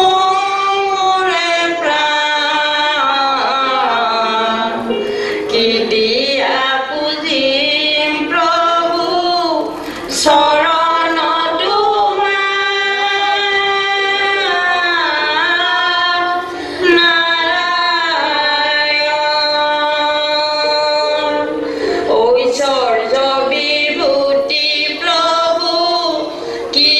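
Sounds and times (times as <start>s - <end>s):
woman singing: 0.0s - 26.9s.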